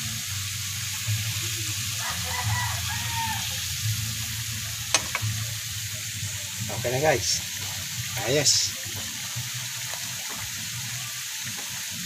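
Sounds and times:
food sizzling in hot oil: 0.0 - 12.0
metal spatula clicking on pan: 4.9 - 5.3.

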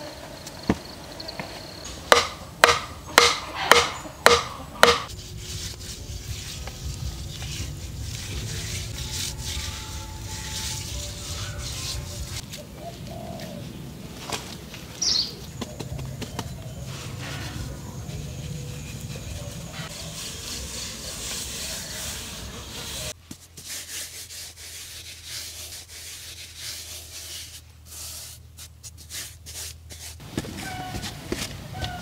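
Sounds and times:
birds calling: 0.1 - 5.1, 11.1 - 20.0
sharp ringing knocks: 2.1 - 5.1.

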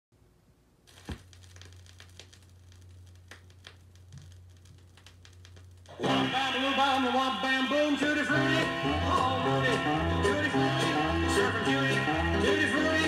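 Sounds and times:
vinyl crackles and pops: 0.8 - 7.9.

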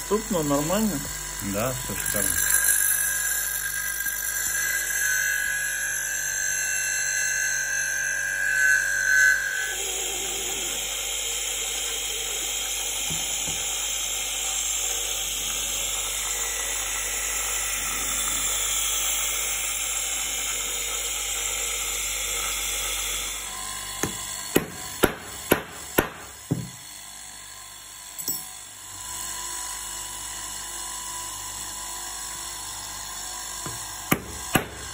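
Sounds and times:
bench grinder running: 0.0 - 34.9.

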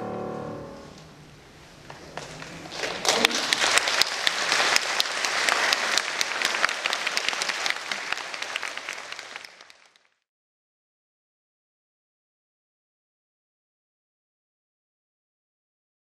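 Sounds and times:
audience applauding: 2.1 - 10.2.

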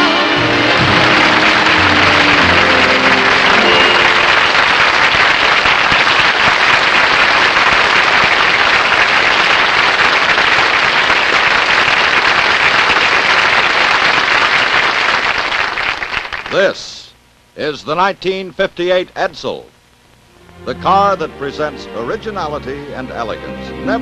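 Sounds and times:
audience applauding: 0.0 - 16.8.

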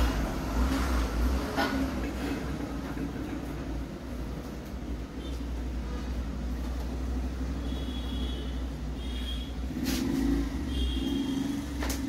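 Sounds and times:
trucks passing: 0.0 - 4.4, 9.6 - 12.0.

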